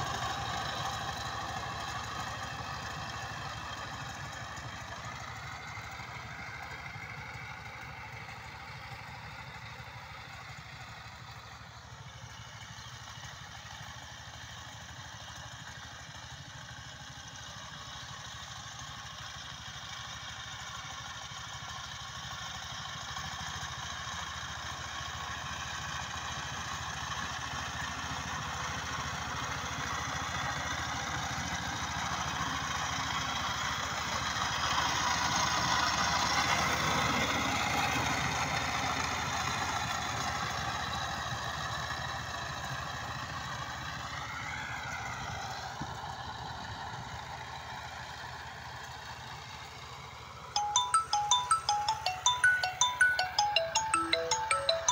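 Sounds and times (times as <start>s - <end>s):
diesel engine running: 0.0s - 50.7s.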